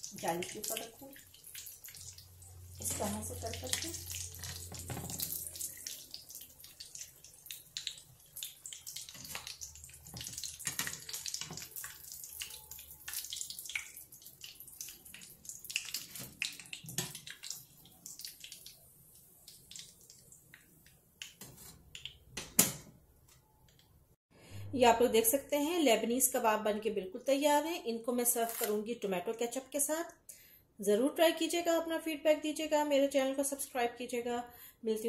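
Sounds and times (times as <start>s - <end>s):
food sizzling in hot oil: 0.0s - 20.5s.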